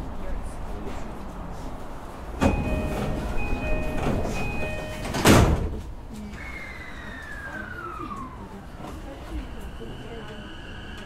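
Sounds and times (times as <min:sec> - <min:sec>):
two-tone door chime: 0:02.4 - 0:05.6
sliding doors shutting thud: 0:02.4 - 0:05.8.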